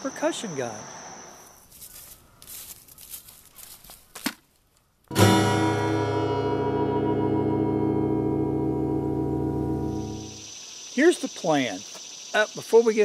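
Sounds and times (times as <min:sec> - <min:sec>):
acoustic guitar strumming: 0:05.1 - 0:10.5.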